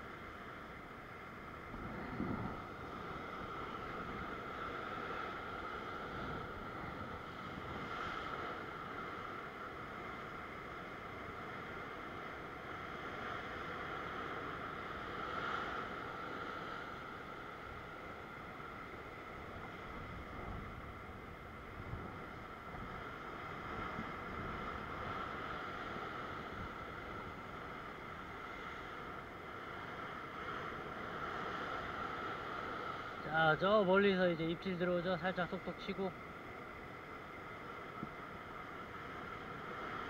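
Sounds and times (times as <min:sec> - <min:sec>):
surf rushing over rocks: 0:00.0 - 0:40.0
wind on microphone: 0:01.4 - 0:10.2, 0:19.2 - 0:33.2.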